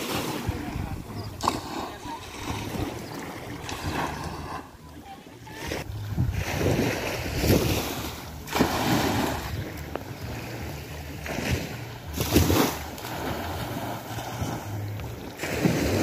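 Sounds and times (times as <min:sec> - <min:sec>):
small waves washing in: 0:00.0 - 0:16.0
wind buffeting microphone: 0:05.6 - 0:16.0.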